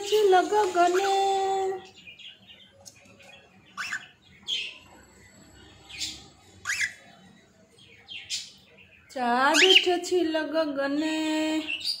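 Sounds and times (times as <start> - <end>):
cockatiel high calls: 3.8 - 4.1, 6.6 - 7.0.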